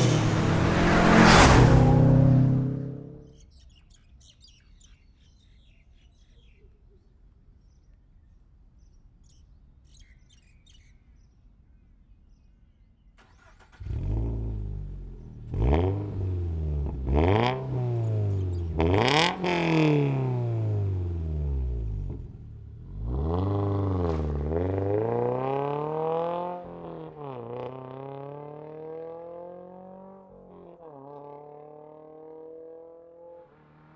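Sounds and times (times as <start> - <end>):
car engine revving: 0.0 - 3.3, 13.4 - 33.9
faint bird chirps: 3.2 - 13.4.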